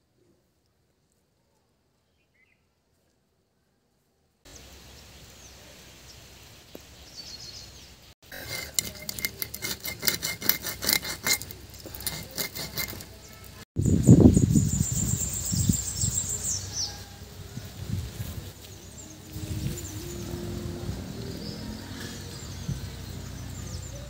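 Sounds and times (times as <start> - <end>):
faint outdoor background noise: 0.0 - 24.0
birds chirping: 4.5 - 17.0, 18.6 - 24.0.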